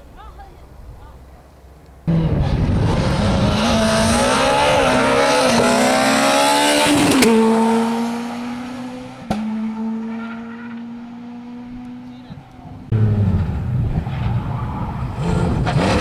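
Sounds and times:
rally car engine revving: 2.1 - 16.0.

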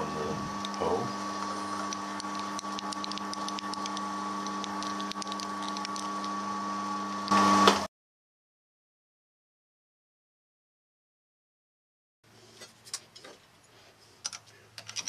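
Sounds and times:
milling machine motor whine: 0.0 - 7.9
light ticking from cutting: 0.5 - 6.4.

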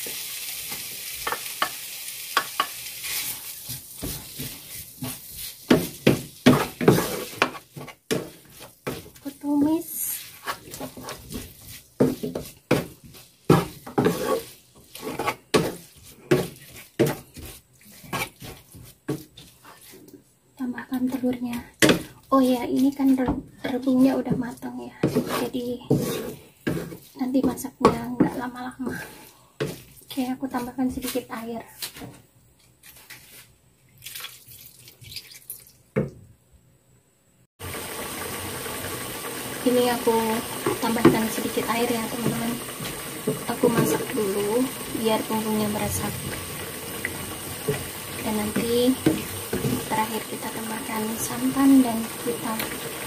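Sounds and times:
wooden spatula scraping a frying pan: 2.4 - 20.3, 21.0 - 32.2, 38.6 - 53.0
pan hissing: 37.6 - 53.0.

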